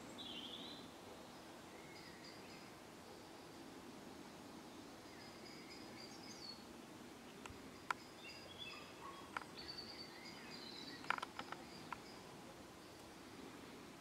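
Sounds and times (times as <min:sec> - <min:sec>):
high birdsong: 0:00.0 - 0:14.0
sharp clicks: 0:11.0 - 0:12.0.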